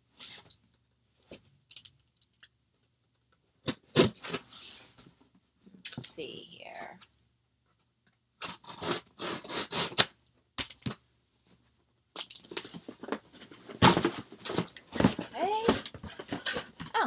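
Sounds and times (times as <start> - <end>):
packing tape tearing: 8.4 - 10.2.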